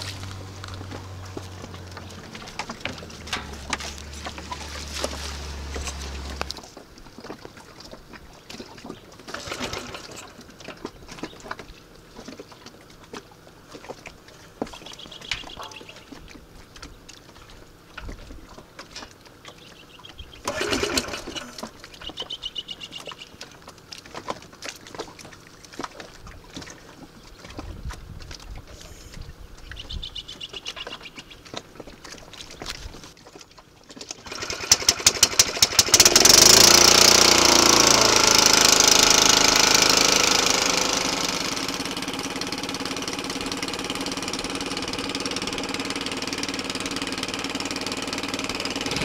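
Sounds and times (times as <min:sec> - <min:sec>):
gear knocking and rattling: 0:00.0 - 0:06.7, 0:34.0 - 0:49.0
low steady hum: 0:00.0 - 0:07.1
water lapping around boat: 0:00.0 - 0:49.0
short high chirping calls: 0:14.8 - 0:16.1, 0:21.9 - 0:23.4, 0:29.7 - 0:31.4.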